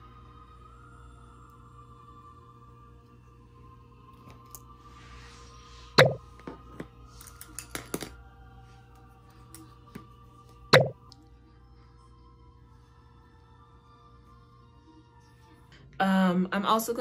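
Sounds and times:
faint music: 0:00.0 - 0:17.0.

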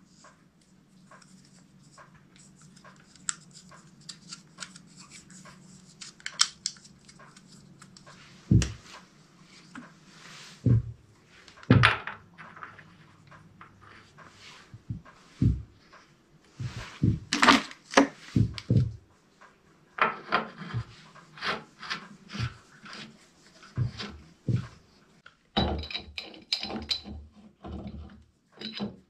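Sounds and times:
heavy knocks: 0:08.5 - 0:08.8, 0:10.6 - 0:11.0, 0:11.7 - 0:12.2, 0:14.8 - 0:15.8, 0:16.6 - 0:17.3, 0:18.4 - 0:19.0.

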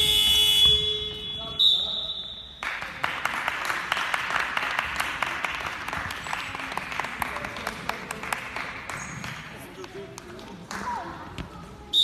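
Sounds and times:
spectators applauding: 0:02.6 - 0:10.9.

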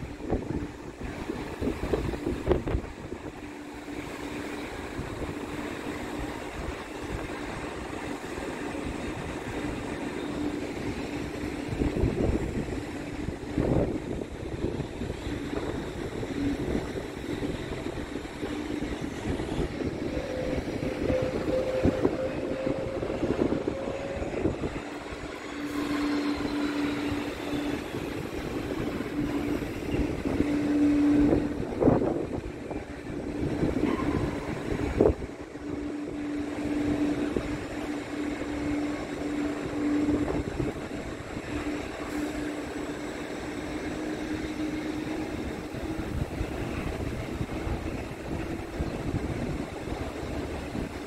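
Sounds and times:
jet engine drone: 0:00.0 - 0:51.0.

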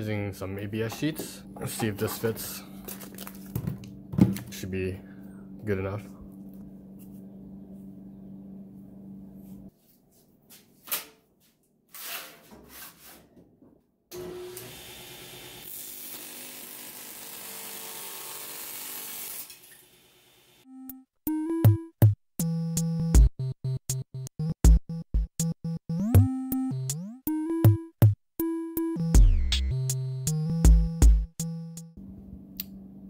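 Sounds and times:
table saw cutting plastic: 0:14.1 - 0:20.6
synthesizer background music: 0:20.6 - 0:32.0.

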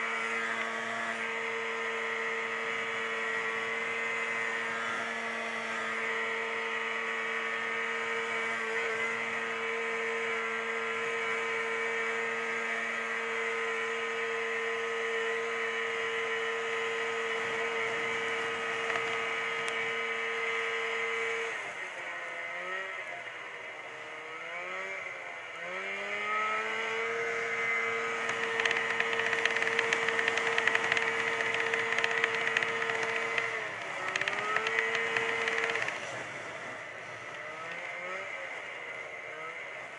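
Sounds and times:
snowmobile engine running: 0:13.4 - 0:21.4, 0:26.8 - 0:39.5.

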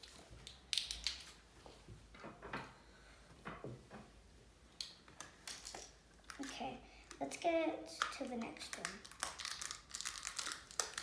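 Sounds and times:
plastic toy pieces clicking on wood: 0:08.0 - 0:11.0.

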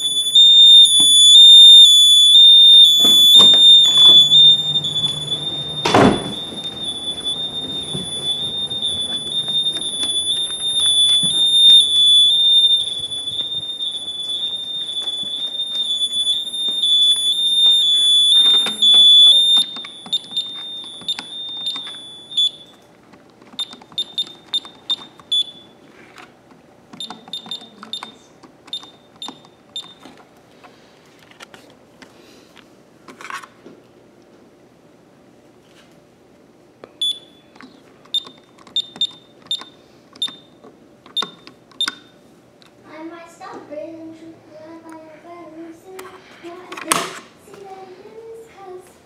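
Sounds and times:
high-pitched electronic alarm tone: 0:00.0 - 0:22.7
short key-press beeps: 0:05.8 - 0:22.6, 0:27.0 - 0:30.0, 0:38.1 - 0:40.5, 0:41.2 - 0:42.0.

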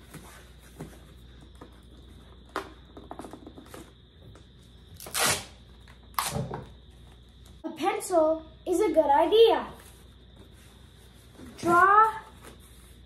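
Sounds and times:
duct tape ripping off roll: 0:05.0 - 0:06.5.

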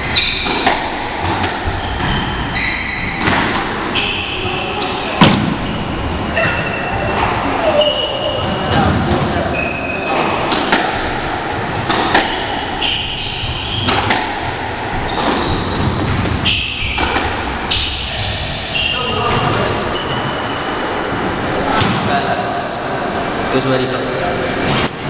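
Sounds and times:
rackets striking ball: 0:00.0 - 0:09.4, 0:10.1 - 0:19.6
shoes squeaking on wooden floor: 0:01.6 - 0:10.5, 0:14.9 - 0:21.4.

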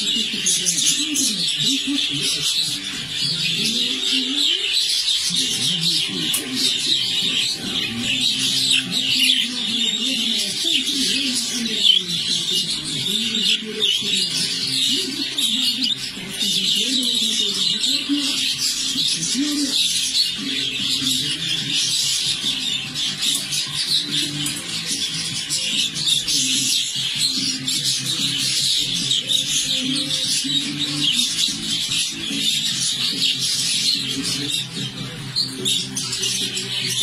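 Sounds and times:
budgerigars chattering: 0:00.0 - 0:37.0.

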